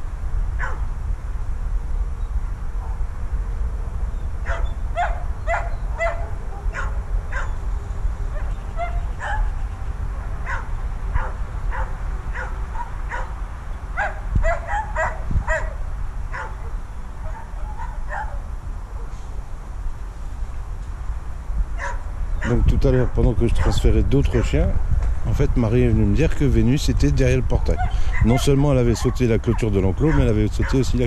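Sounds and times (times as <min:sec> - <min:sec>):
dog barking and yelping: 0:00.6 - 0:00.8, 0:04.4 - 0:07.6, 0:08.3 - 0:13.4, 0:14.0 - 0:19.2, 0:21.8 - 0:24.6, 0:27.7 - 0:30.8.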